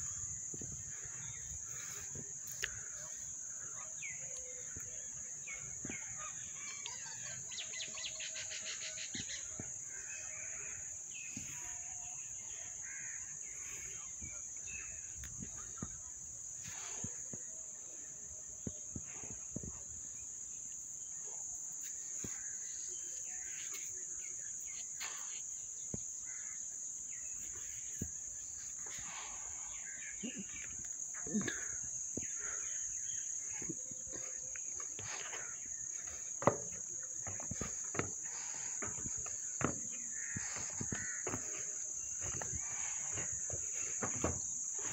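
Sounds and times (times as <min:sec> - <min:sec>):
birds calling: 0:00.0 - 0:17.6, 0:21.8 - 0:44.9.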